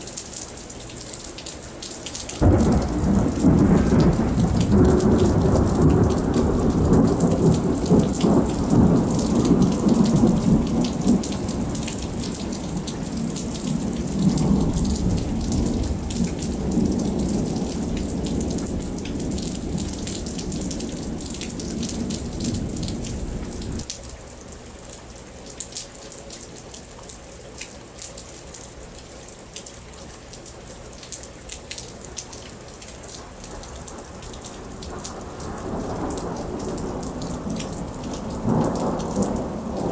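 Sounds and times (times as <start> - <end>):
raindrops ticking: 0.0 - 39.9
steady rain: 0.0 - 39.9
thunder rumbling: 2.4 - 23.9, 33.5 - 39.9.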